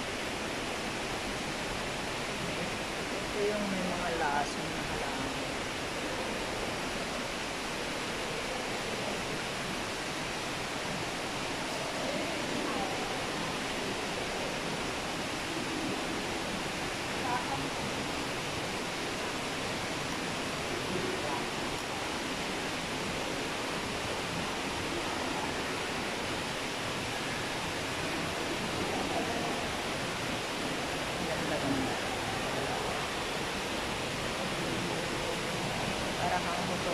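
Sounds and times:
running water: 0:00.0 - 0:36.9
steady rushing noise: 0:00.0 - 0:36.9.

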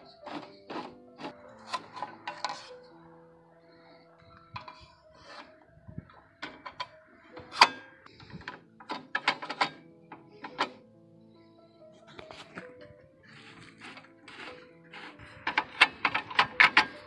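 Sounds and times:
saw rip fence clicking and knocking: 0:13.8 - 0:17.0.

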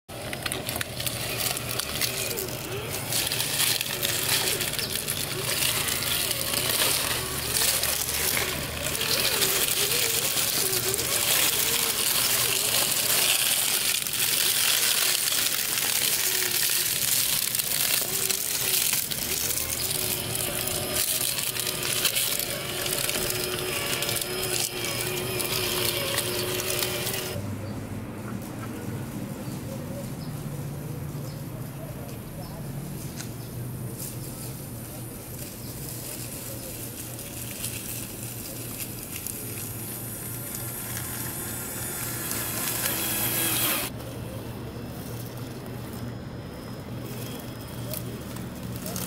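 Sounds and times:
crunching dry leaves: 0:00.1 - 0:49.0
electric motor whining: 0:00.3 - 0:27.4, 0:39.3 - 0:43.9.

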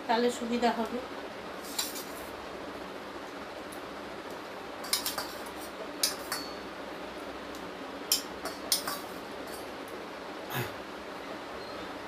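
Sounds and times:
metal spoon clinking on bowl: 0:06.0 - 0:06.6.

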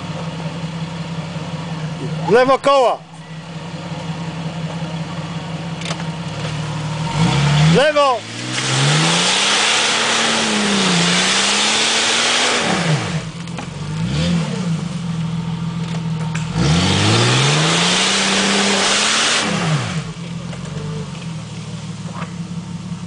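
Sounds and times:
engine revving hard: 0:06.9 - 0:13.3, 0:13.9 - 0:15.0, 0:16.4 - 0:20.2.

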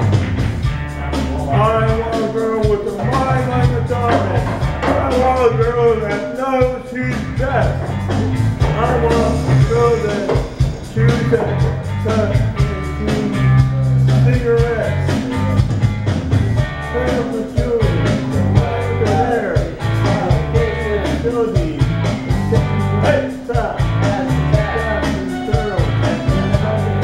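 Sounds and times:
rock and roll backing track: 0:00.0 - 0:27.0
man singing into microphone: 0:16.9 - 0:27.0.

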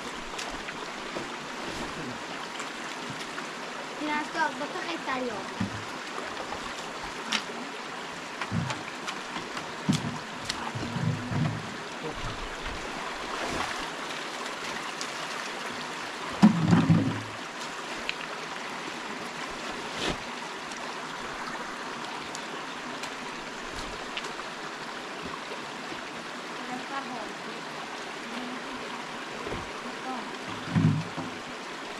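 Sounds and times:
river water flowing: 0:00.0 - 0:31.9
knocks and thumps: 0:05.6 - 0:05.9, 0:08.4 - 0:12.4, 0:16.4 - 0:17.4, 0:30.5 - 0:31.4.

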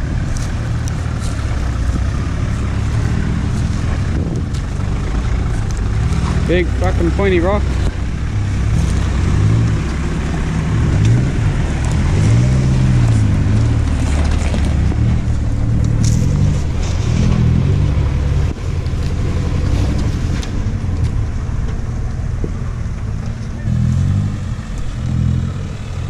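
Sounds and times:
diesel engine revving: 0:00.0 - 0:26.0
tyres knocking and scraping rock: 0:00.4 - 0:08.0, 0:12.2 - 0:17.8.

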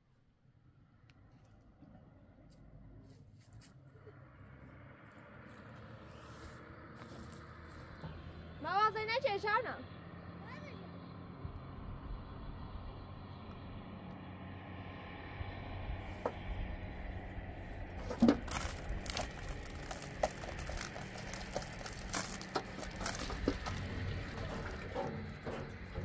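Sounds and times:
hose water filling metal drum: 0:18.0 - 0:26.0
water splashes and knocks: 0:18.0 - 0:26.0.

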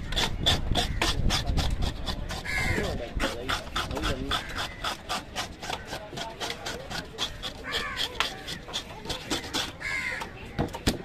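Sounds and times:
knife scraping fish: 0:00.0 - 0:10.4
crow cawing: 0:02.4 - 0:03.0, 0:07.4 - 0:08.7, 0:09.8 - 0:10.3.

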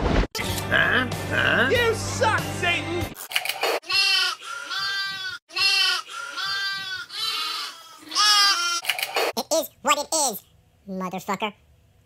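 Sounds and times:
drawn-out bleating calls: 0:03.9 - 0:08.8.

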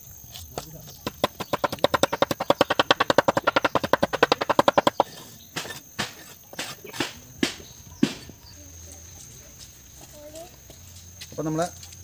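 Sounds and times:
cleaver chopping on wooden block: 0:00.6 - 0:08.3.

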